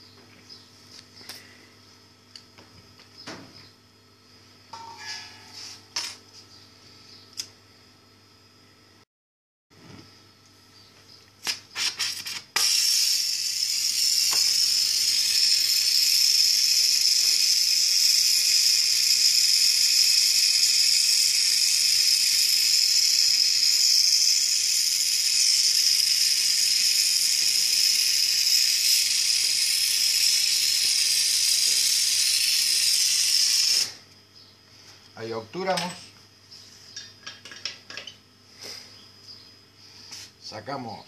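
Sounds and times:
torch flame hissing: 11.4 - 34.0
torch lighting clicks: 14.2 - 14.6.

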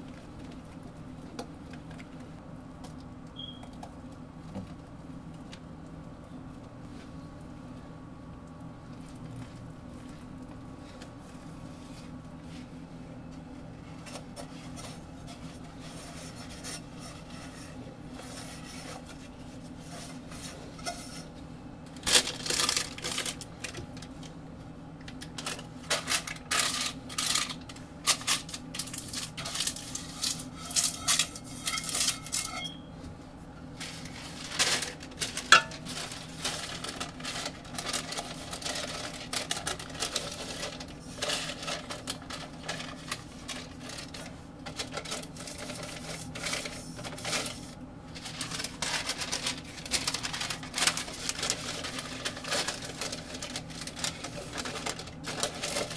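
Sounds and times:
steady low hum: 0.0 - 55.9
parchment paper crinkling: 13.6 - 21.3, 21.9 - 24.4, 25.0 - 32.6, 33.8 - 55.9.

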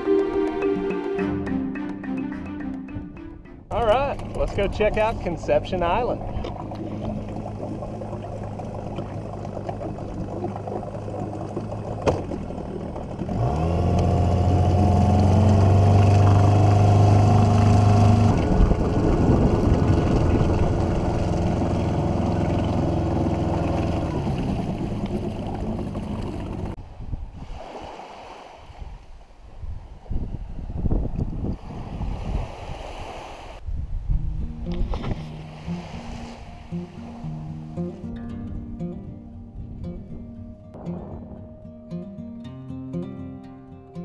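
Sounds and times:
outboard motor running: 4.1 - 26.8.

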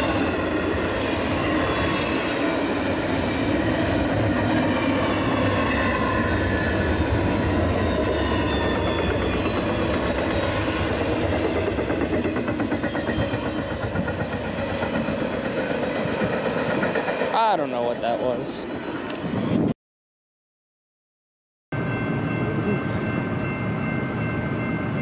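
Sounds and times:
freight train wheels rumbling: 0.0 - 19.7.

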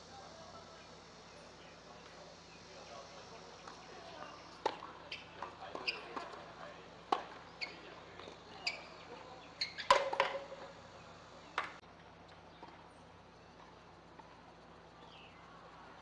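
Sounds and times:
faint outdoor ambience: 0.0 - 16.0
racket striking tennis ball: 4.6 - 6.4, 9.7 - 10.6.

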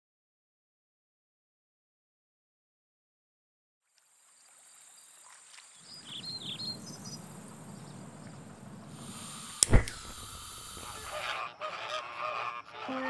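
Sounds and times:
crickets droning: 3.8 - 13.0.

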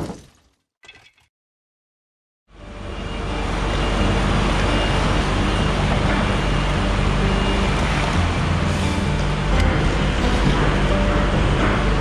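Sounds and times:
heavy diesel engines running: 2.5 - 12.0.

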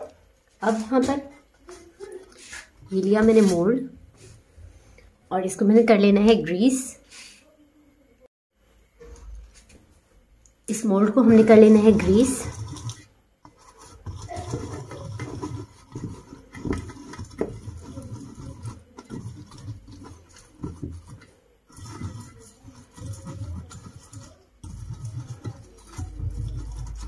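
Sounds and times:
brush rubbing and knocking in metal mold: 0.0 - 4.4, 11.0 - 27.0.

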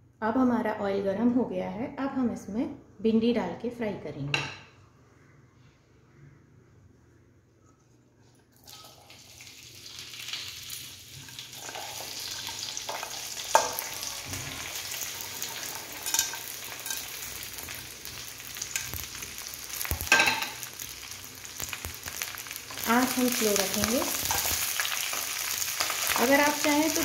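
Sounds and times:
frying sizzle: 8.6 - 27.0.

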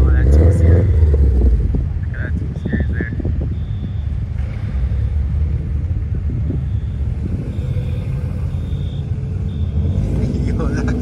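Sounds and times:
car engines idling: 0.0 - 11.0.

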